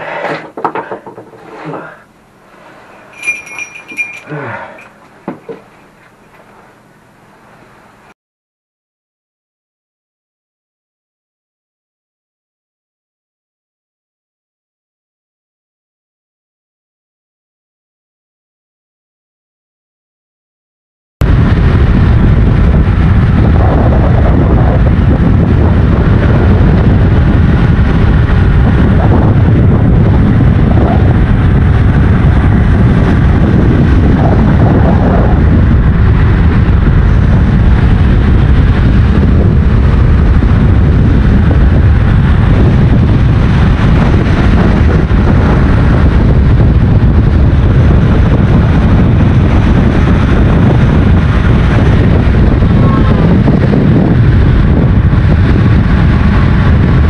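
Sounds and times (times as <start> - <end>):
wind buffeting microphone: 21.2 - 57.0.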